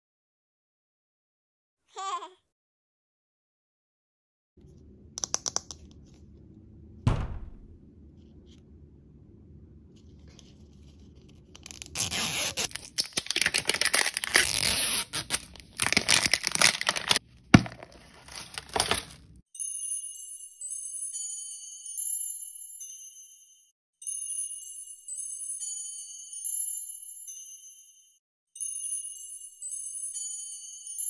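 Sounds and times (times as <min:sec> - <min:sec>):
single knock: 0:07.1 - 0:07.8
plastic wrap crinkling: 0:11.6 - 0:19.4
plastic capsule snapping open: 0:12.7 - 0:14.6, 0:15.3 - 0:19.2.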